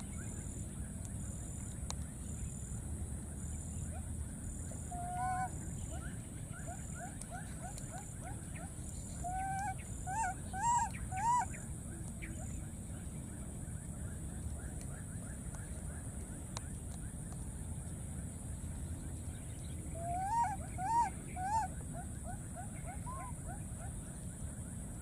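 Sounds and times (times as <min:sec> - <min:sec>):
baby macaque cooing: 0:09.2 - 0:11.5, 0:20.0 - 0:23.6.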